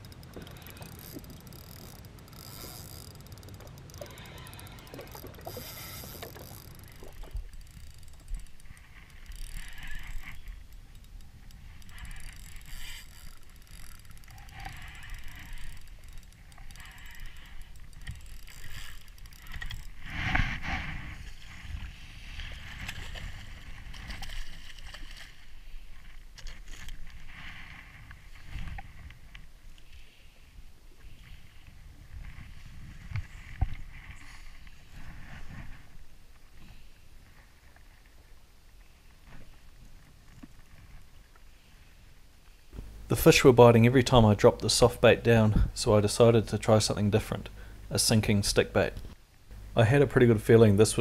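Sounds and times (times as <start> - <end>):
water lapping against hull: 0.0 - 42.2
wind rumbling on microphone: 30.6 - 36.3.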